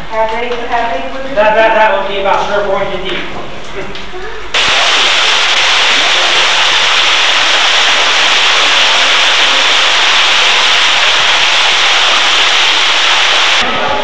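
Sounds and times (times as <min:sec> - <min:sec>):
loud steady hiss: 0:04.5 - 0:13.7.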